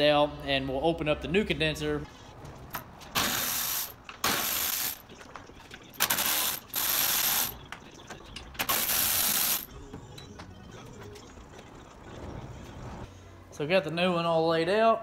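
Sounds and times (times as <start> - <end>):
ratchet turning bolts: 6.0 - 7.6.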